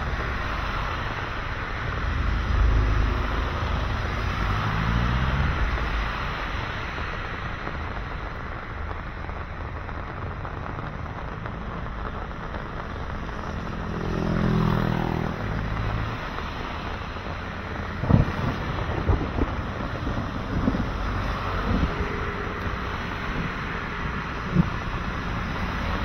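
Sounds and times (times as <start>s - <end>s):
passing vehicle engine: 0.0s - 7.3s, 12.9s - 26.0s
traffic rumble: 0.0s - 26.0s
wind hiss: 0.0s - 26.0s.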